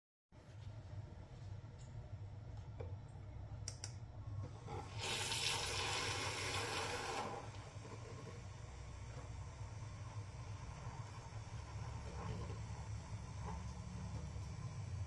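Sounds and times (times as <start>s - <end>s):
milk frother hissing: 4.5s - 15.0s.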